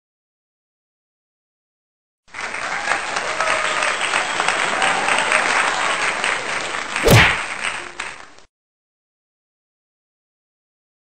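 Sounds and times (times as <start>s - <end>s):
crowd applause and cheering: 2.4s - 8.1s
loud impact thud: 7.0s - 7.5s.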